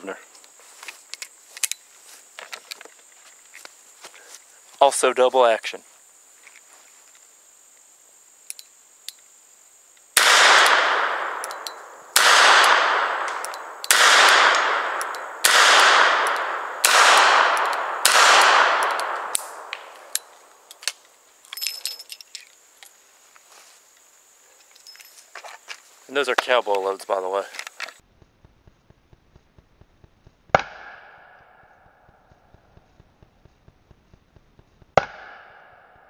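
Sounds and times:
revolver shots echoing: 10.2s - 20.3s.

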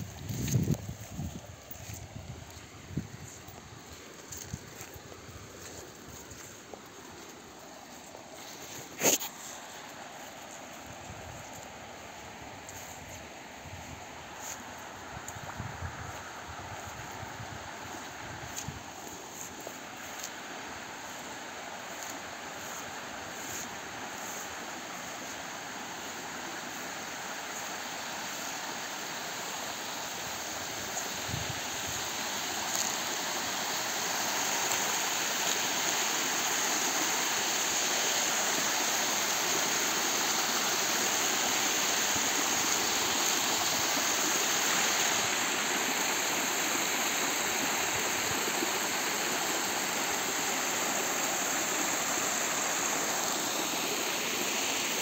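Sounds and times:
stream splashing over rocks: 17.7s - 55.0s.

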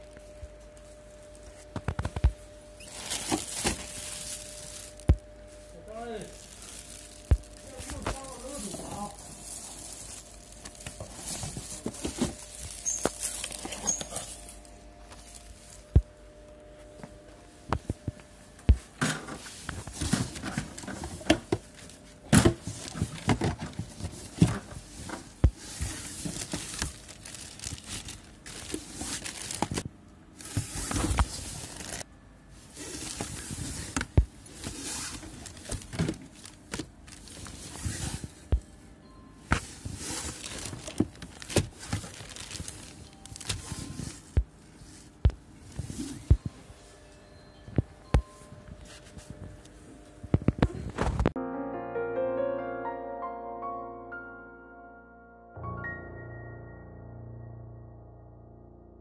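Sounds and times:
plastic bags rustling: 0.6s - 15.9s, 18.8s - 38.8s, 39.5s - 47.1s.

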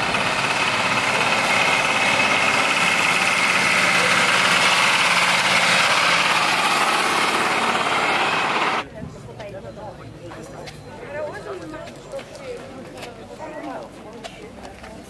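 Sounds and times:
truck engine driving past: 0.0s - 8.8s.

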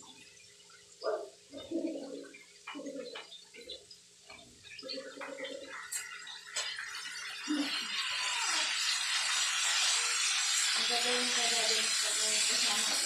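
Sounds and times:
gas burner hissing: 6.5s - 13.0s.

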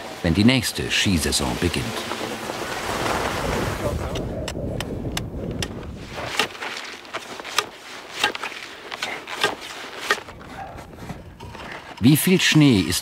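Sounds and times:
metal probe crunching into snow: 6.0s - 13.0s.

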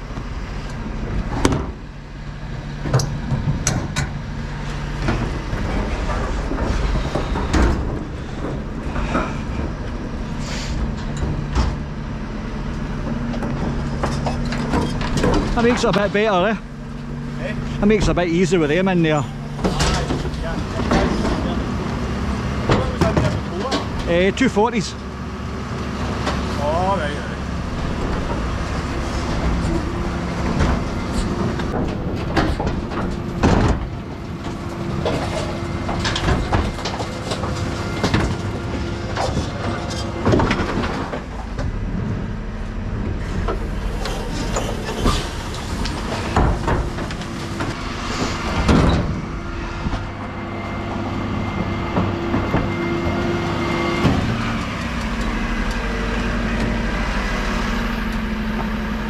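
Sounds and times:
hydraulic bin lift running: 0.0s - 59.0s
metal clanks and bangs: 12.9s - 24.9s, 26.2s - 57.0s.

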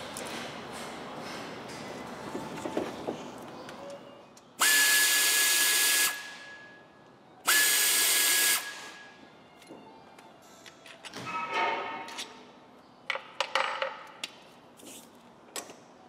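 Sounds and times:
pneumatic ratchet whine: 4.6s - 6.5s, 7.5s - 9.0s.

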